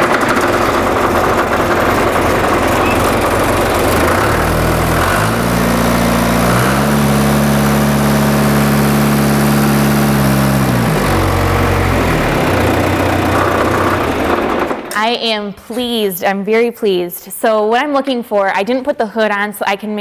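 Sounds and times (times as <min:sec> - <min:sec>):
tractor diesel engine revving: 0:00.0 - 0:14.9.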